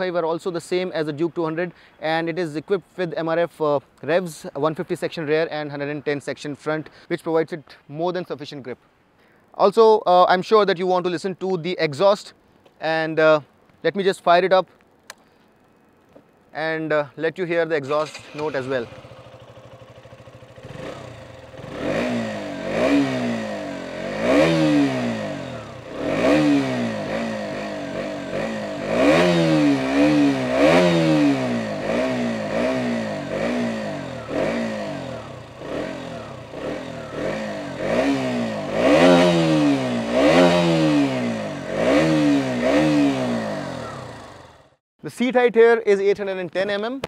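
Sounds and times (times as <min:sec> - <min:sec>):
motorcycle engine revving: 0:17.8 - 0:44.8.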